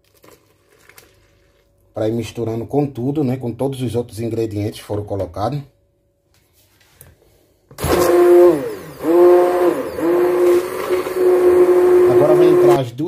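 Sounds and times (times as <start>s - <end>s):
immersion blender whining: 7.8s - 12.8s.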